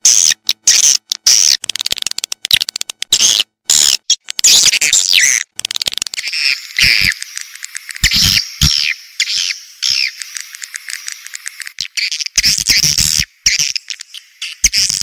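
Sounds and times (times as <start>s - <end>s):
swiftlet chattering clicks: 0.3s - 15.0s
high twittering chirps: 3.2s - 15.0s.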